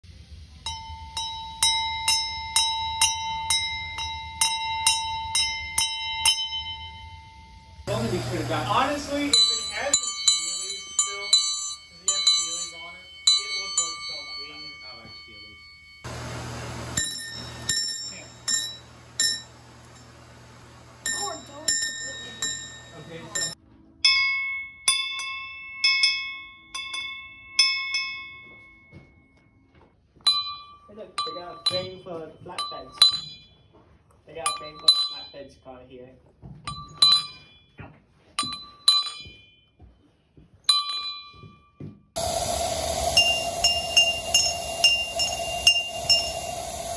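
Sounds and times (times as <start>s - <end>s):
brass bell ringing: 0.6s - 23.6s, 43.1s - 46.9s.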